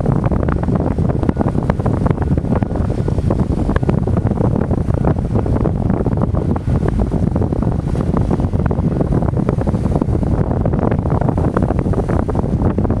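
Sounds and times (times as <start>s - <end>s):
wind buffeting the microphone: 0.0s - 13.0s.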